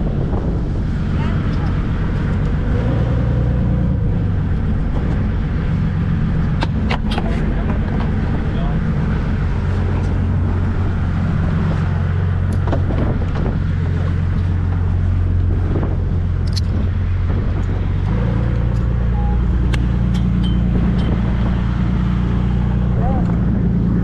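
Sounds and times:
boat engine droning: 0.0s - 24.0s.

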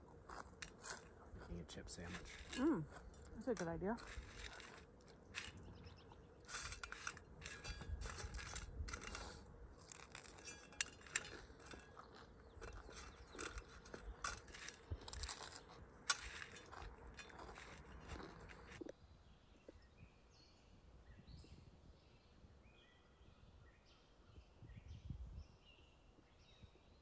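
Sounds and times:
rustling and crunching: 0.0s - 18.9s.

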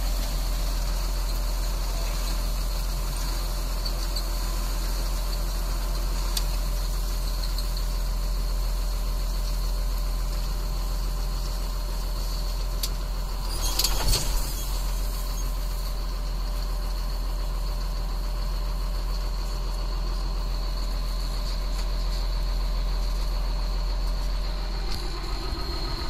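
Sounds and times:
tractor diesel engine running: 0.0s - 26.0s
burst of clatter: 13.2s - 16.2s.

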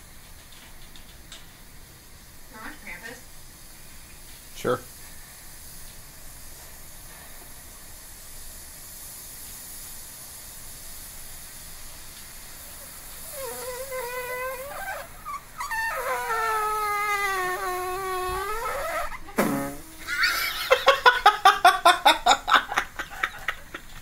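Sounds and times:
faint hiss of steam: 0.0s - 24.0s
whining steam escaping waffle iron: 2.5s - 21.1s.

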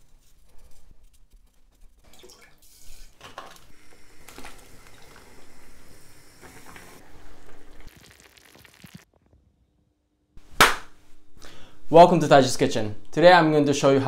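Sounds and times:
stew simmering: 2.0s - 9.1s
soy sauce pouring: 7.3s - 9.1s.

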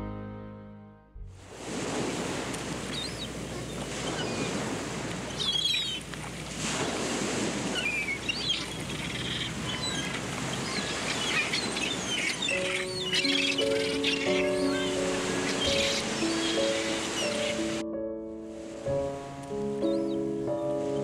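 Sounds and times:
ocean surf breaking on beach: 1.5s - 17.8s, 18.5s - 21.0s
bird calls: 2.1s - 7.0s, 7.6s - 17.8s, 19.8s - 21.0s.

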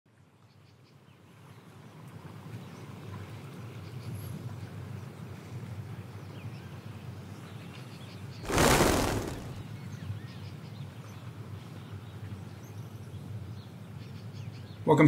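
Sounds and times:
whooshing rush of noise: 8.5s - 9.6s.

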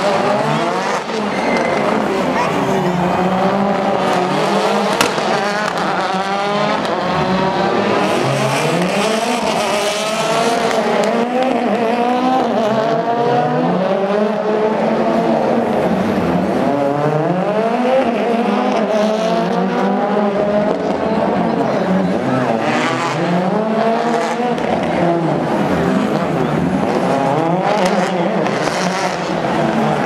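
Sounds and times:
rally car engines revving: 0.0s - 30.0s
sharp engine pop: 4.9s - 5.4s.

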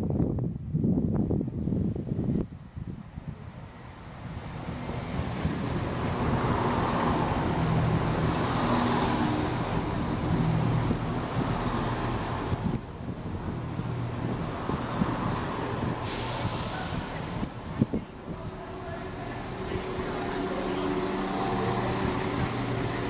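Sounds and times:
diesel train engines humming: 1.3s - 23.0s
air hiss: 14.7s - 17.6s.

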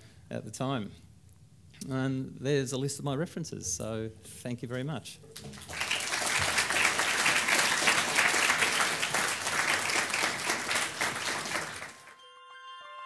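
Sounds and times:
audience applauding: 5.4s - 12.2s.

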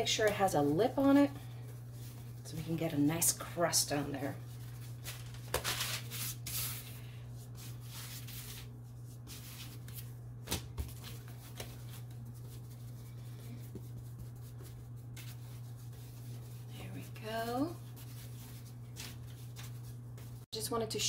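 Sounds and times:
hands patting dough on paper: 0.0s - 3.6s, 4.4s - 20.5s
steady low hum: 0.0s - 21.0s.

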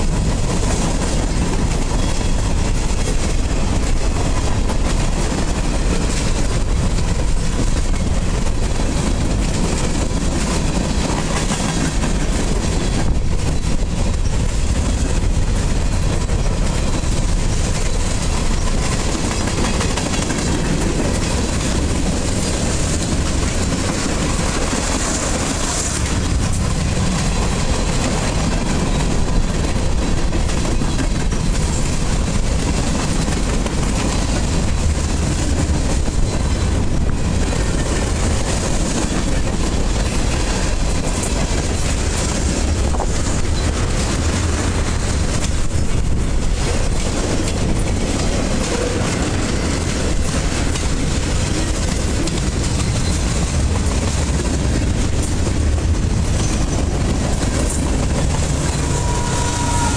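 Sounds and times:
train wheels on rails: 0.0s - 59.9s.

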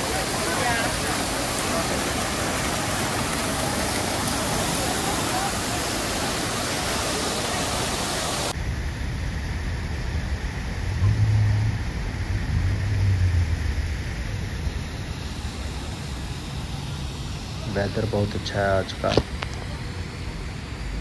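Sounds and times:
fountain water splashing: 0.0s - 21.0s
low rumble: 8.6s - 15.1s.

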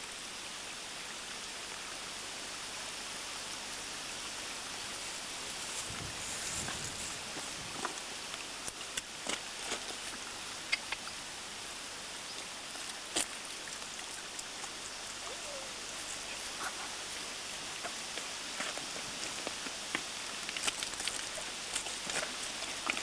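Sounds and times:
stream water running over stones: 0.0s - 23.0s
small clicks and rustles: 17.8s - 23.0s.

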